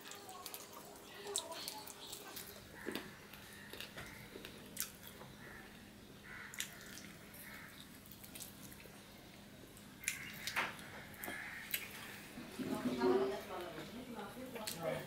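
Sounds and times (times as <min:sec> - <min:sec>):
faint steady hum: 0:00.0 - 0:15.0
chewing and lip smacks: 0:00.1 - 0:05.9, 0:06.5 - 0:09.0, 0:09.7 - 0:12.2.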